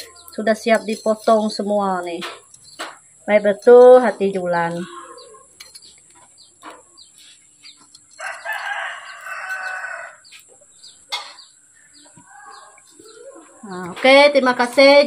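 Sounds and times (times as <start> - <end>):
high bird chirps: 0.0 - 3.3, 4.0 - 14.0
rooster crowing: 8.1 - 10.4, 11.9 - 13.8.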